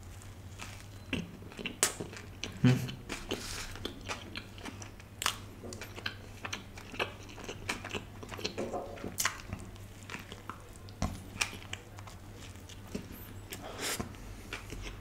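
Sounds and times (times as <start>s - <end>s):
crunching toasted sandwich: 0.0s - 5.9s
wet chewing: 0.2s - 15.0s.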